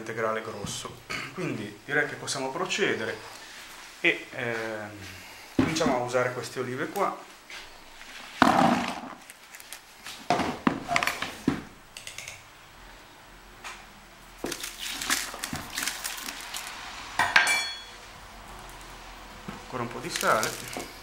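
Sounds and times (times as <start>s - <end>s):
olives clicking and knocking: 14.4s - 16.8s
olives pouring into plastic bucket: 14.4s - 17.2s, 19.6s - 21.0s.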